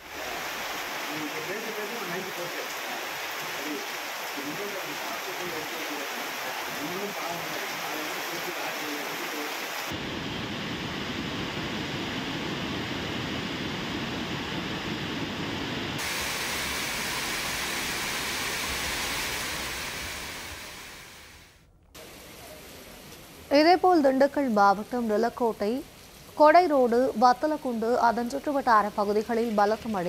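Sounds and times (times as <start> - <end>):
waterfall rushing: 0.0 - 10.1, 16.0 - 22.2
heavy rain hissing: 0.0 - 30.0.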